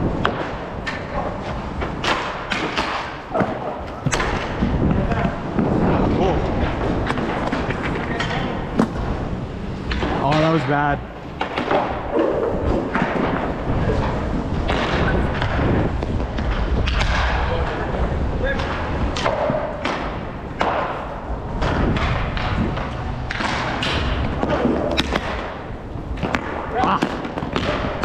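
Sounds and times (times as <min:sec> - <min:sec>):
skates rolling rumble: 0:00.0 - 0:28.0
sticks and puck clacking on boards: 0:00.1 - 0:09.2, 0:09.8 - 0:28.0.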